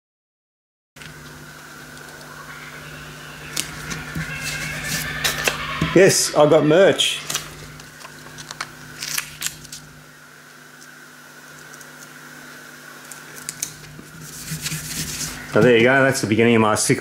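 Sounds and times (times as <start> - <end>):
faint steady hum: 1.0 - 17.0
sticker clicks and crinkles: 13.1 - 14.0.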